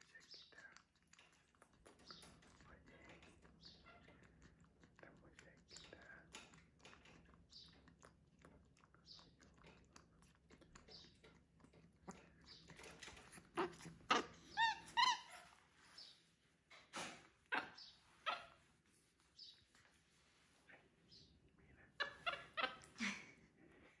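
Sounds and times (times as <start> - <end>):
monkey sucking at baby bottle: 0.0 - 15.6
monkey squeaky calls: 13.6 - 15.6, 22.0 - 23.0.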